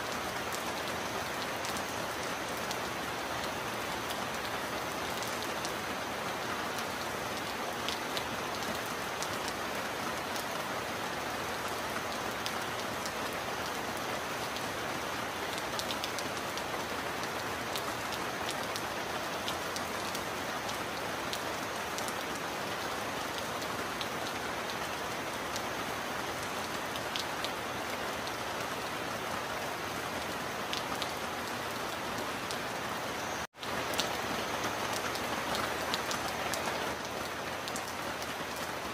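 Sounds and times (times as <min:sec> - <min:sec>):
heavy rain falling: 0:00.0 - 0:38.9
sharp raindrop ticks: 0:33.6 - 0:38.7.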